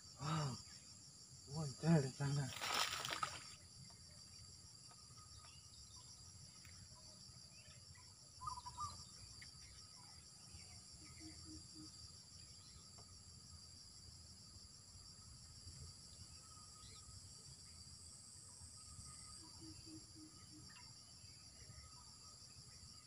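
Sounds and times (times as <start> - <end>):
insects droning: 0.0 - 23.0
faint chirp: 5.2 - 13.0.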